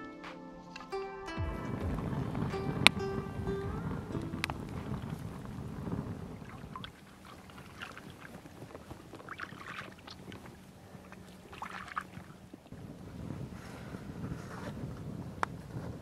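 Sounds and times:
hands splashing in water: 0:06.4 - 0:12.4.

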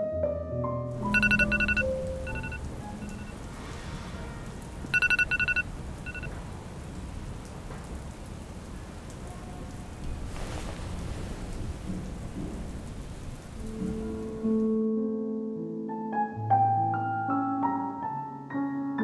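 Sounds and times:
steady rain falling: 0:00.9 - 0:14.8
rapid electronic beeping: 0:01.0 - 0:03.3, 0:05.0 - 0:06.3.

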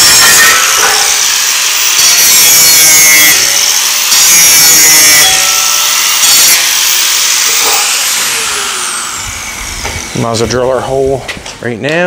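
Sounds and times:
angle grinder cutting metal: 0:00.0 - 0:12.0.

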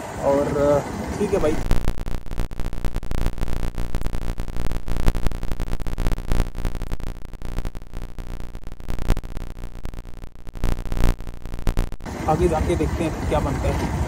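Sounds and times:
low engine hum: 0:12.1 - 0:14.0.

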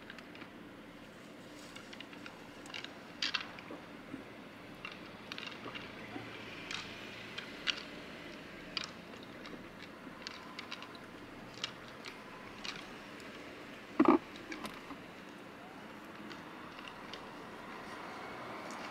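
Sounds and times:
antlers clicking together: 0:06.6 - 0:08.0, 0:08.7 - 0:13.4.

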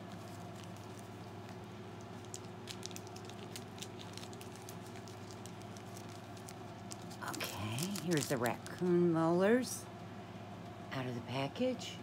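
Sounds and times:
plastic bag crinkling: 0:00.0 - 0:09.4
steady low hum: 0:00.0 - 0:12.0.

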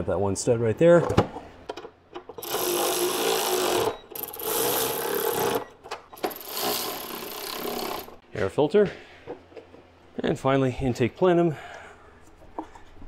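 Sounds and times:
cordless ratchet running: 0:02.4 - 0:05.6, 0:06.2 - 0:08.2.

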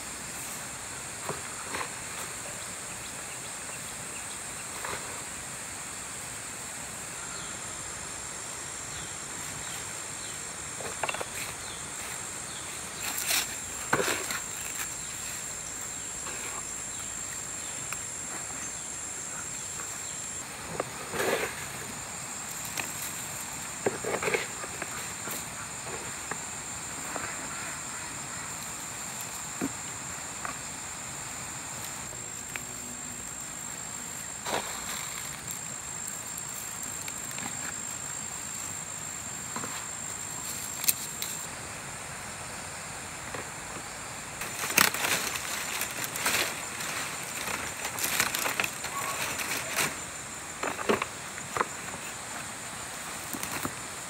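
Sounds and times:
insects chirring: 0:00.0 - 0:54.0.

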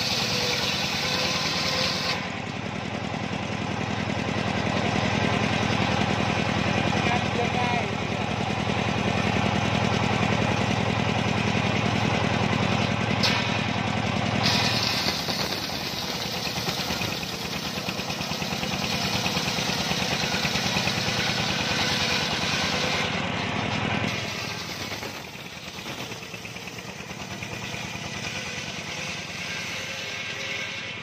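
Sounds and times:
saw blade ripping wood: 0:00.0 - 0:02.4, 0:14.4 - 0:23.2, 0:24.1 - 0:26.8
circular saw running: 0:00.0 - 0:31.0.

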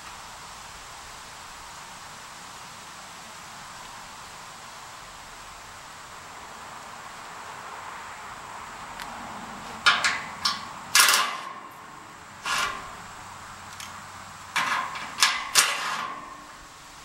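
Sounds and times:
metal clanking: 0:09.8 - 0:13.2, 0:13.8 - 0:16.8.

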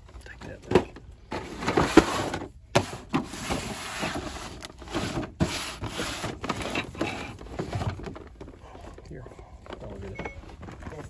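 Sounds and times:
cardboard boxes sliding on shelf: 0:01.3 - 0:08.1.

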